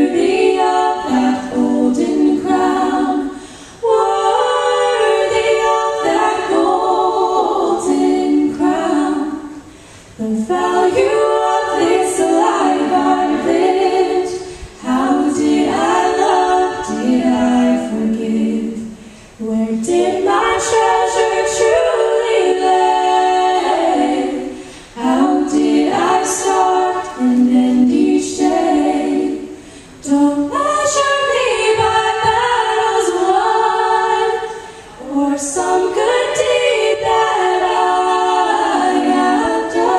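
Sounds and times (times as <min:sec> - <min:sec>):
women singing in harmony: 0:00.0 - 0:39.9.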